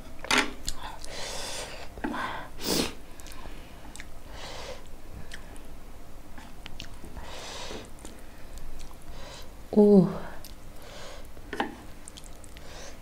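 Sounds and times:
chewing noodles: 3.2 - 4.1, 6.4 - 7.1, 7.9 - 9.0, 11.2 - 12.7
wet mouth clicks: 5.3 - 5.5.

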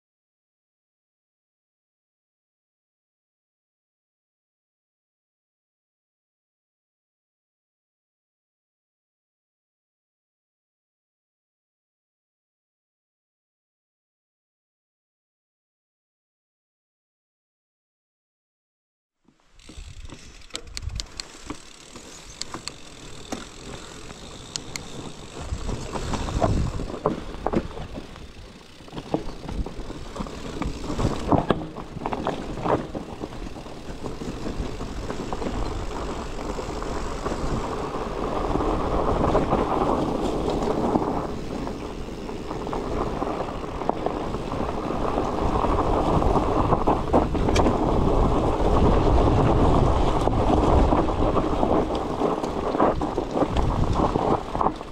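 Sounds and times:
bicycle knocks and rattles: 19.3 - 54.9
wind noise on microphone: 19.6 - 54.9.

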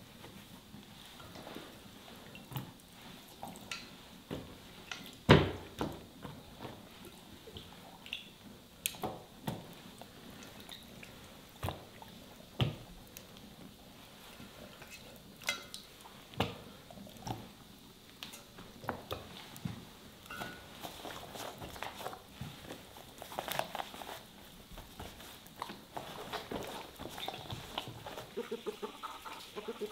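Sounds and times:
wet handling noises: 18.2 - 29.9.

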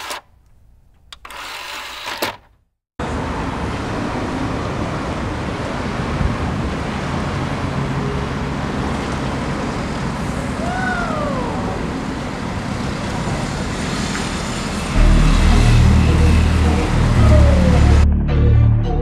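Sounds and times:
street traffic noise: 1.0 - 18.2
low car engine hum: 14.4 - 19.0.

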